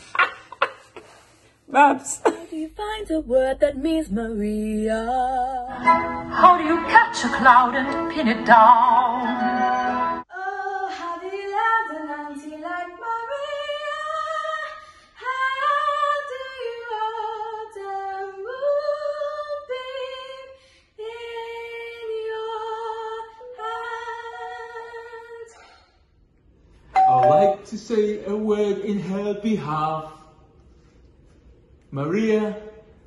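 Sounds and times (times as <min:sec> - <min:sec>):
women singing unaccompanied: 0:01.9 - 0:25.5.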